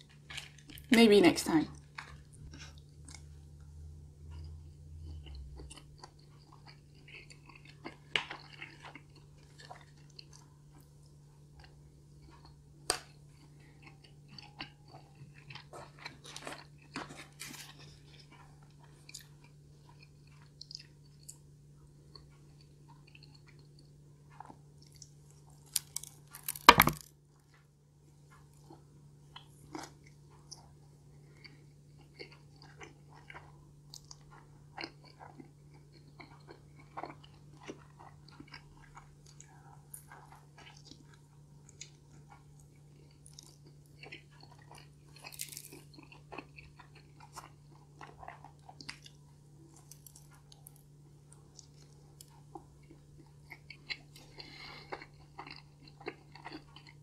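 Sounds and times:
food crunching: 0.0 - 27.7, 28.3 - 57.0
person chewing and biting: 1.8 - 3.4, 4.1 - 21.4, 22.0 - 27.1, 28.5 - 57.0
low hum: 2.0 - 6.8.

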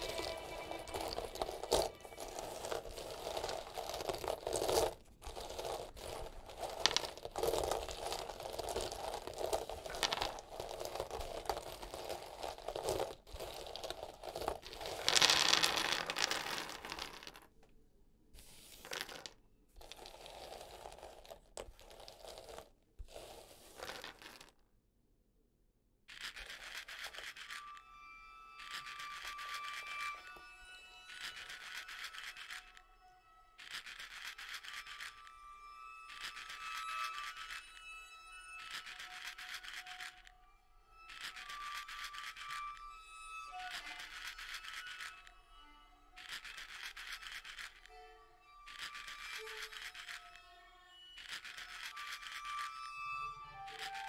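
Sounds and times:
dried beans rattling: 0.0 - 17.5, 18.5 - 24.5, 26.1 - 27.8, 28.6 - 30.5, 31.1 - 32.8, 33.6 - 35.3, 36.1 - 37.9, 38.6 - 40.3, 41.0 - 42.8, 43.6 - 45.3, 46.2 - 47.9, 48.6 - 50.4, 51.2 - 54.0.

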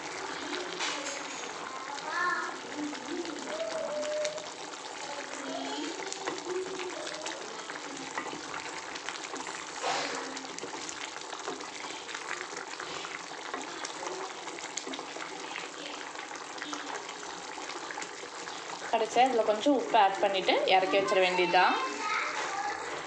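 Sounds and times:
curry bubbling and popping: 0.0 - 23.0.

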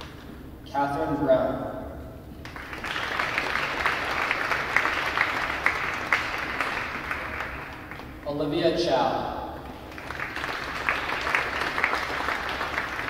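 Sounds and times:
audience applauding: 2.4 - 8.2, 9.6 - 13.0.

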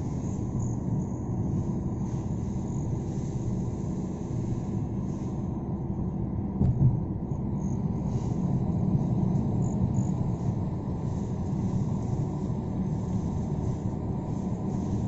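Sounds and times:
car engine and tyres rumbling: 0.0 - 15.0
brief knock: 6.6 - 7.0.

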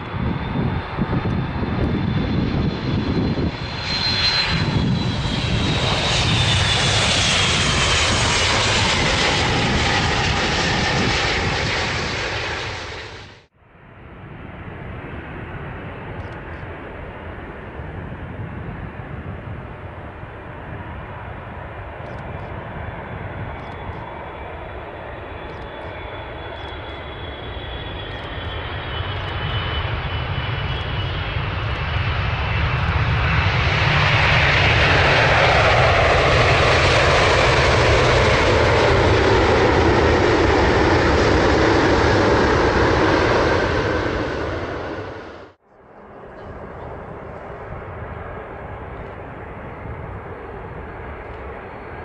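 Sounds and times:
jet engines whining: 0.0 - 52.0
reverse thrust engine rush: 33.8 - 45.6.

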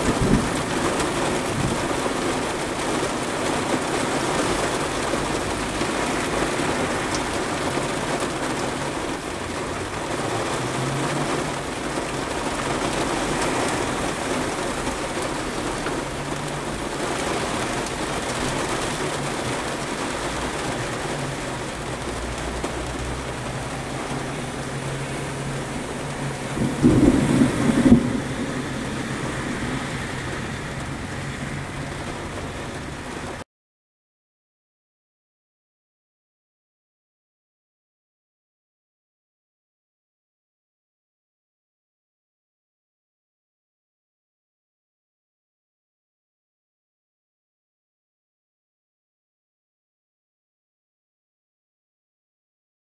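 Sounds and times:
rain pattering on car roof: 0.0 - 33.4
low rumble: 20.9 - 33.0.

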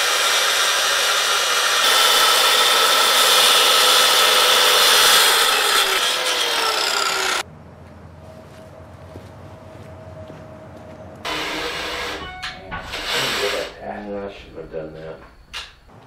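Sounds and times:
circular saw cutting wood: 0.0 - 7.4, 11.2 - 14.2.

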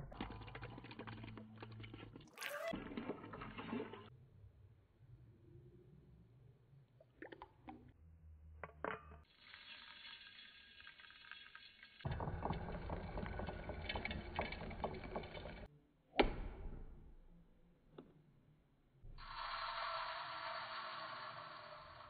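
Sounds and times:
liquid pouring and rustling: 0.0 - 4.1, 9.3 - 15.7.

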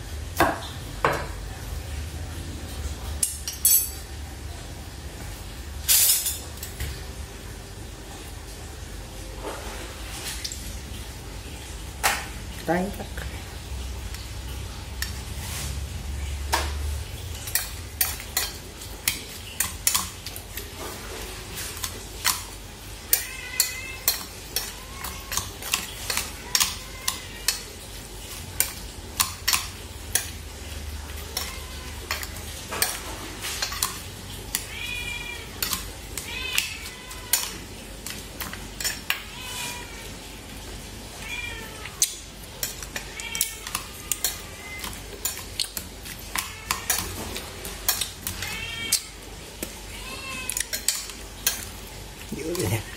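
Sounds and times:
utensils clinking on metal bowl: 3.2 - 4.0, 5.9 - 6.8, 17.2 - 39.8, 41.8 - 52.9
cat meowing: 23.1 - 27.8, 31.0 - 32.2, 34.5 - 37.7, 39.1 - 40.2, 41.1 - 42.1, 43.0 - 45.1, 46.2 - 47.2, 48.3 - 49.2, 49.8 - 51.0.

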